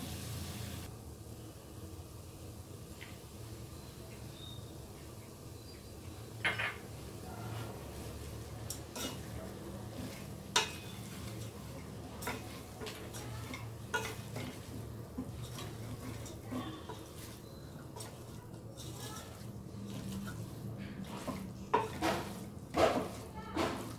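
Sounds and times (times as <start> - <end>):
spatula scraping a metal pot: 9.9 - 23.9.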